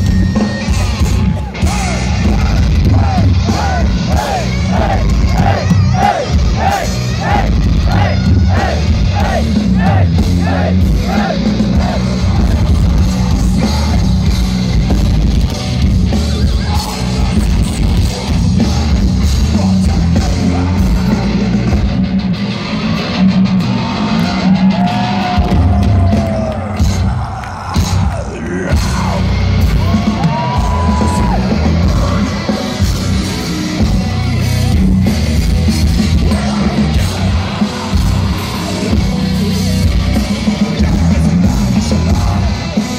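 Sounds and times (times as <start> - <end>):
heavy metal band playing: 0.0 - 42.9
sung and shouted vocals: 1.6 - 14.9, 36.1 - 42.9.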